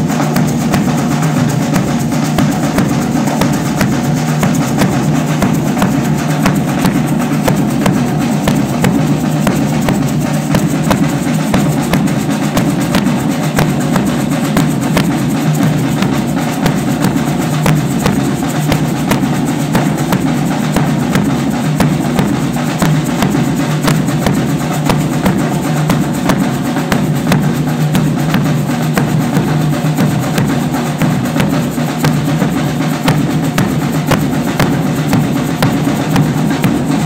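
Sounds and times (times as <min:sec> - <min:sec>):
bass drum: 0:00.0 - 0:37.0
congas: 0:00.0 - 0:37.0
hand drums: 0:00.0 - 0:37.0
metal tube shaker: 0:00.0 - 0:37.0.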